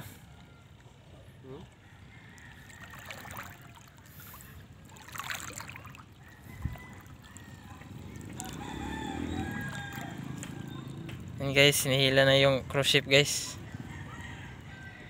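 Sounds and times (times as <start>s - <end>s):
rooster crowing: 6.2s - 10.9s.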